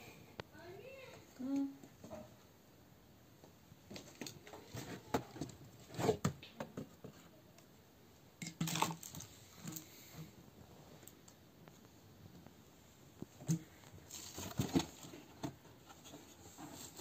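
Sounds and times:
clatter and scrape: 14.1s - 17.0s.

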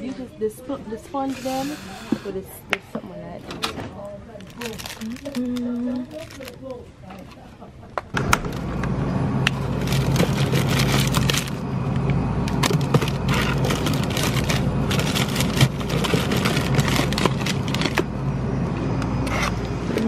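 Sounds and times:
plastic wrap crinkling: 4.3s - 7.3s, 9.6s - 11.6s, 12.8s - 18.0s
steady low hum: 7.6s - 20.0s.

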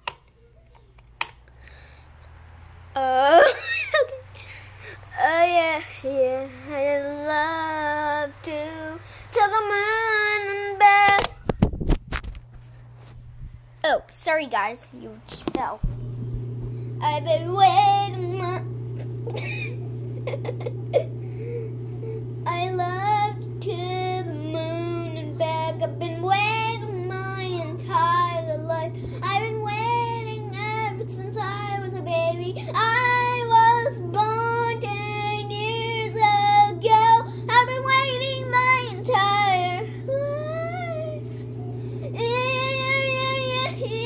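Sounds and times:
electric fan hum: 0.0s - 44.0s
girl singing into fan: 2.9s - 11.4s, 16.9s - 19.6s, 20.4s - 44.0s.

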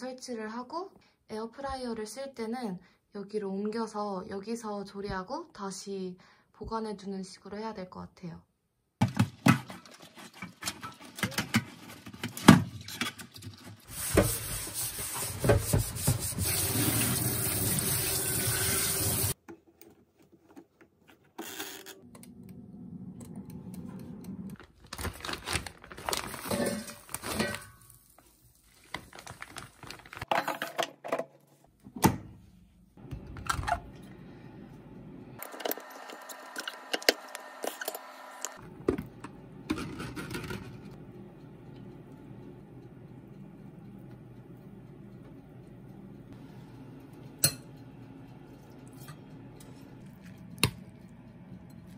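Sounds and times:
kitchen clicks and clatters: 9.0s - 14.5s, 26.0s - 27.9s, 39.7s - 41.0s
tap water running into sink: 14.0s - 19.4s.

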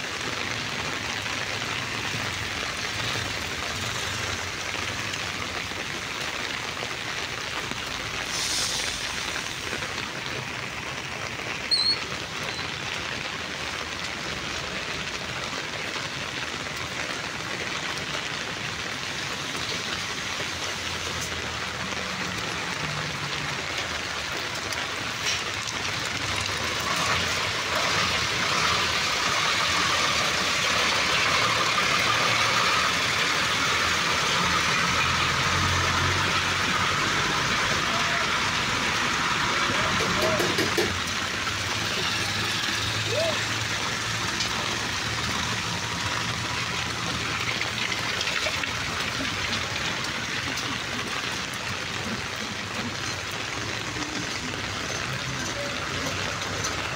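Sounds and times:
rain falling on wet ground: 0.0s - 56.9s
vehicle engine: 25.2s - 56.9s.

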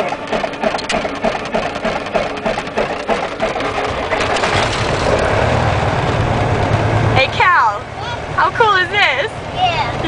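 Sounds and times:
plane piston engine starting: 0.0s - 7.8s.

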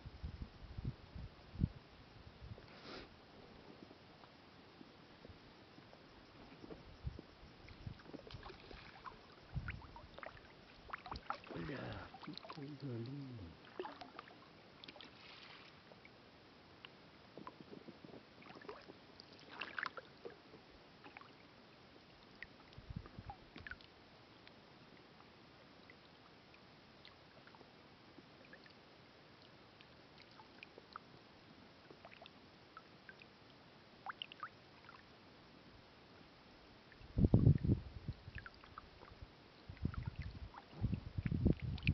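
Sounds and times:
faint water drips: 7.6s - 16.2s, 16.8s - 35.1s, 36.8s - 41.9s.

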